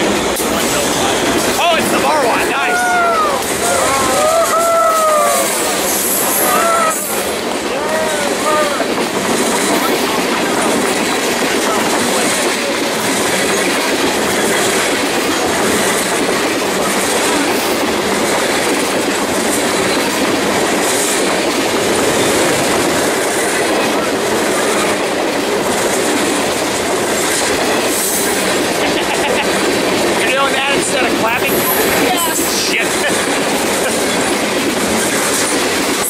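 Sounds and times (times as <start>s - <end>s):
train wheels running on rails: 0.0s - 36.0s.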